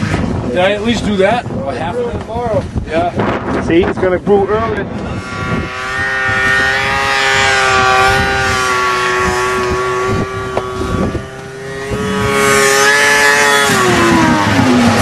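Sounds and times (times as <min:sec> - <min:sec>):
snowmobile engine whine: 0:00.0 - 0:15.0.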